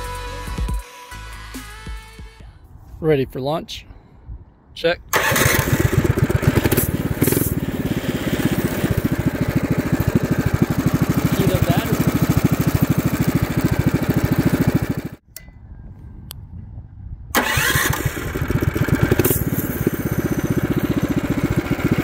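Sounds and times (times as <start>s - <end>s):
small engine running: 5.2s - 15.2s, 17.4s - 22.0s.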